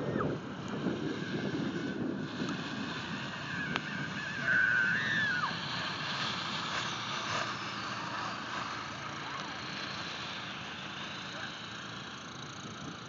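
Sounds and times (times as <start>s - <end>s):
wind buffeting microphone: 0.0s - 5.7s
small vehicle engine: 0.0s - 13.0s
high held cry: 3.9s - 5.6s.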